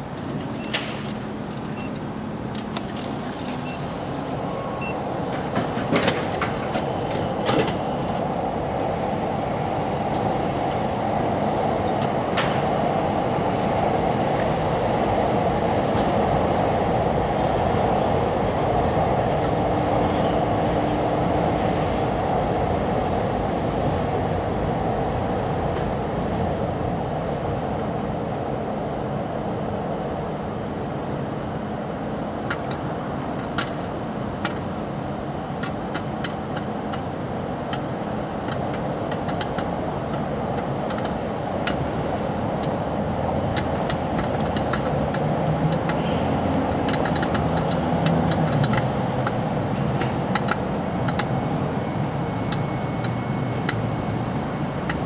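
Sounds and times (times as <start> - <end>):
popcorn machine blower and heater: 30.7 - 55.0.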